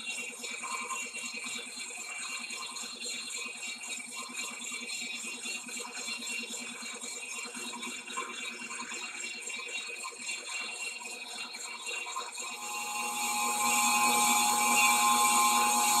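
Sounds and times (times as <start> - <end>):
lathe machine hum: 12.5 - 16.0.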